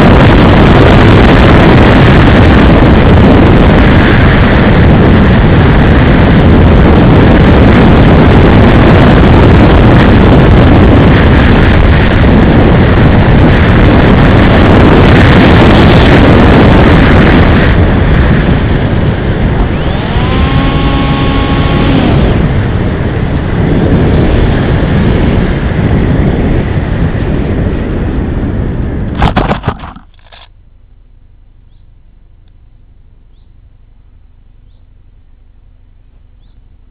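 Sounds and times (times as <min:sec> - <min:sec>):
motor whine: 0:00.0 - 0:25.2
faint hum: 0:00.0 - 0:36.9
wind and propeller noise: 0:00.0 - 0:36.9
plane knocking into grass: 0:29.2 - 0:30.3.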